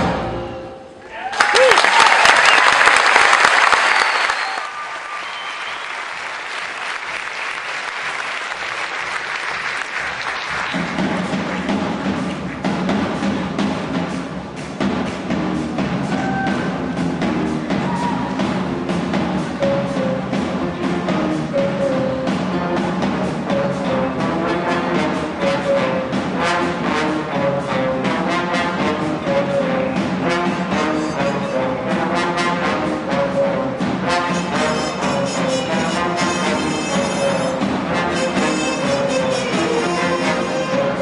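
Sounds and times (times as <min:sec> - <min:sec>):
audience applause: 0:01.2 - 0:12.6
drums beating: 0:05.8 - 0:41.0
school band playing: 0:05.9 - 0:41.0.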